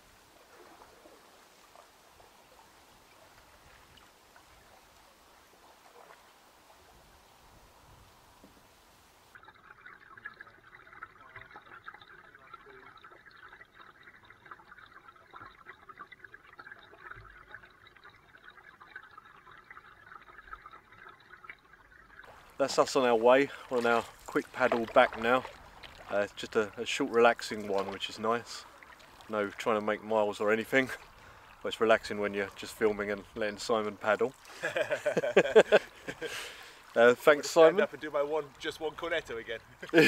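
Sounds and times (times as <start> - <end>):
water splashing around canoe: 0.0 - 8.7, 22.2 - 40.0
faint steady hiss: 0.0 - 9.5, 22.2 - 40.0.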